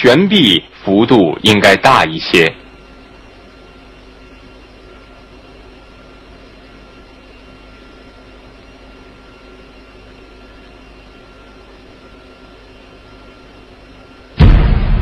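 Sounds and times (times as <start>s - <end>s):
faint steady tones: 0.0s - 14.4s
background hiss and hum: 0.0s - 15.0s
loud burst of noise: 14.4s - 15.0s.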